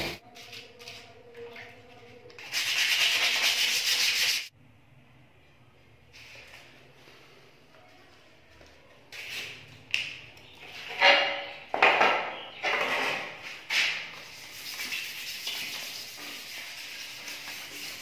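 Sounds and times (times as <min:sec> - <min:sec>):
sandpaper rubbing on metal: 0:02.4 - 0:04.5, 0:14.2 - 0:18.0
knocks and scrapes on metal: 0:10.8 - 0:14.0.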